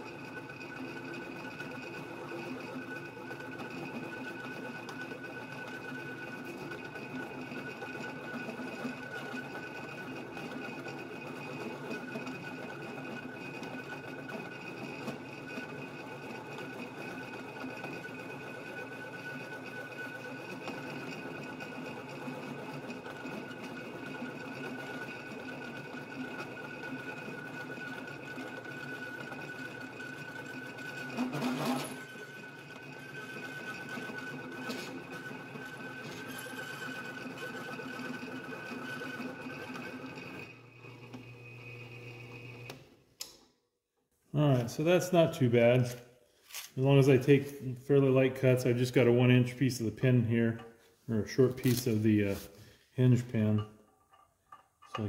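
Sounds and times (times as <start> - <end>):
drill press boring metal: 30.7 - 39.0.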